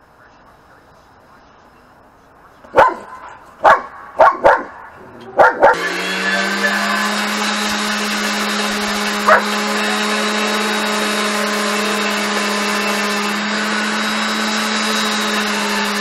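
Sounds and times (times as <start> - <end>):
dog barking: 2.7 - 5.9, 9.2 - 9.6
electric grinder running: 5.7 - 16.0.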